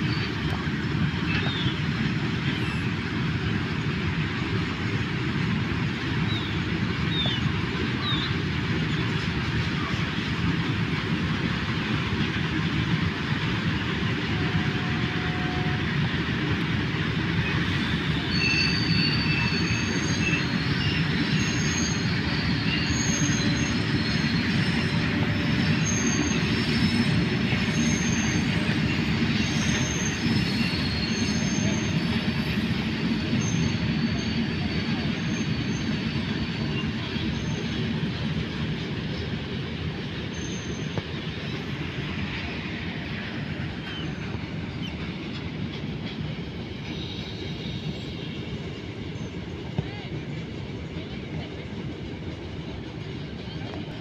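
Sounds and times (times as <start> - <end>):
train wagon wheels rumbling: 0.0 - 54.0
high-pitched wheel squeals: 17.8 - 37.6.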